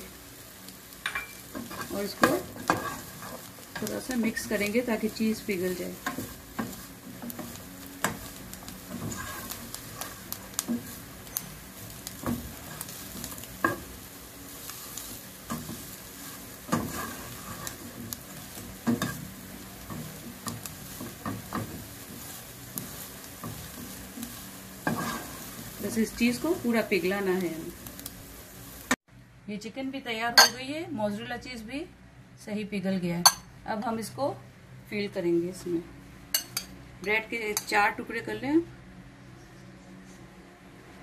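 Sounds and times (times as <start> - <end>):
low sizzle: 0.0 - 41.0
spatula scraping a frying pan: 1.2 - 4.0, 6.0 - 13.9, 14.6 - 25.9.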